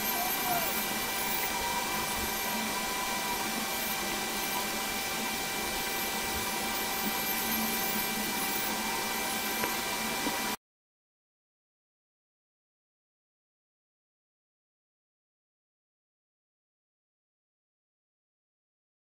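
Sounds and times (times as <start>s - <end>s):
faint steady tones: 0.0s - 10.6s.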